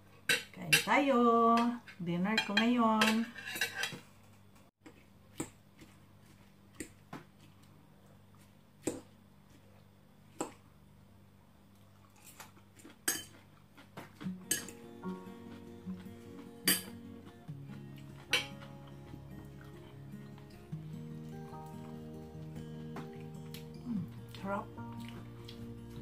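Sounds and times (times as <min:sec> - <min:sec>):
faint music: 0:13.3 - 0:26.0
cutlery clinking on glass bowl: 0:14.5 - 0:14.8, 0:16.7 - 0:17.0.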